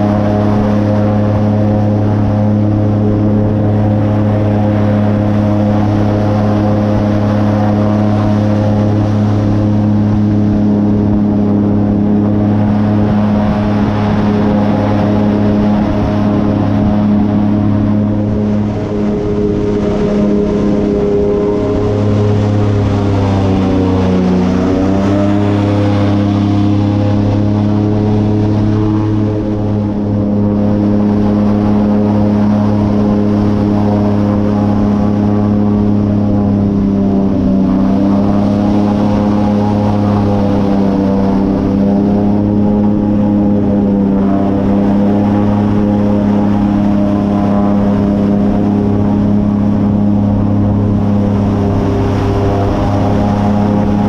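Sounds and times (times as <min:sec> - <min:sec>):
airboat engine droning: 0:00.0 - 0:54.0.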